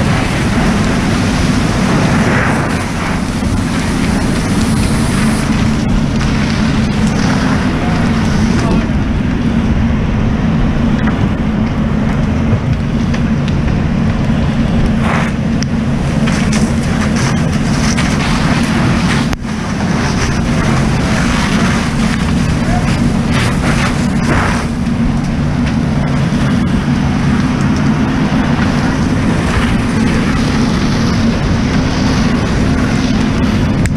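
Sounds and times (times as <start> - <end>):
fire hose spraying water: 0.0 - 33.9
steady low hum: 0.0 - 33.9.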